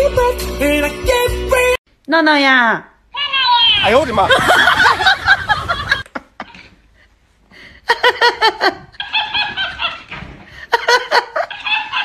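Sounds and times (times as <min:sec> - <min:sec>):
high-pitched laughter: 0:07.9 - 0:12.0.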